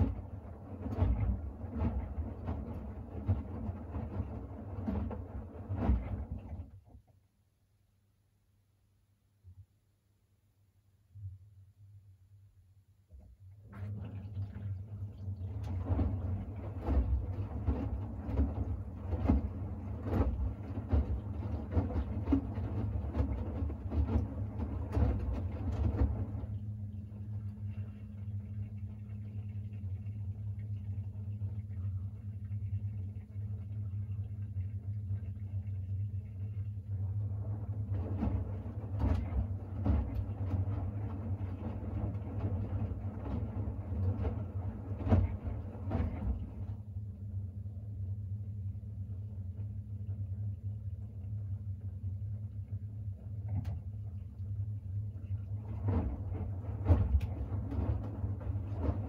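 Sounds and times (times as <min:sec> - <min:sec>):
water sloshing and thudding: 0:00.0 - 0:07.1, 0:13.1 - 0:47.0, 0:49.6 - 0:59.0
washing machine hum: 0:00.0 - 0:07.6, 0:10.8 - 0:59.0
washing machine drum tumbling: 0:13.7 - 0:26.6, 0:37.4 - 0:46.7, 0:55.5 - 0:59.0.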